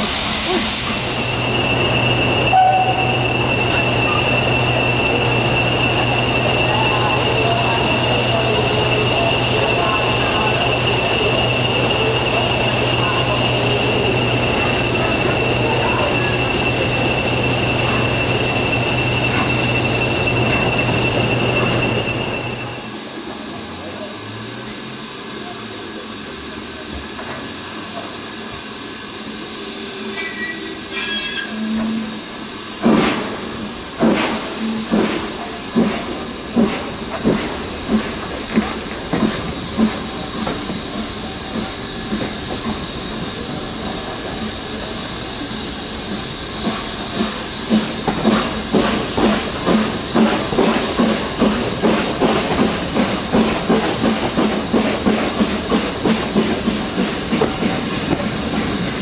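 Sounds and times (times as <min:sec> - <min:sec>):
steam locomotive exhaust beats: 0:00.0 - 0:24.1, 0:31.7 - 0:59.0
steam hissing: 0:00.0 - 0:59.0
train whistle: 0:02.4 - 0:04.2, 0:29.6 - 0:32.8.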